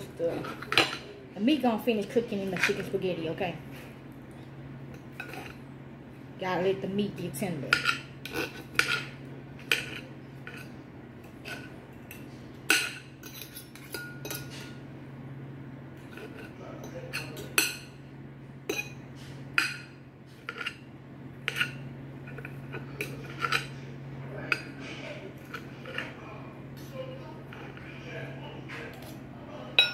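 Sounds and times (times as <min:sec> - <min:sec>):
cutlery clinking on plate: 0:11.4 - 0:14.8, 0:21.4 - 0:23.8.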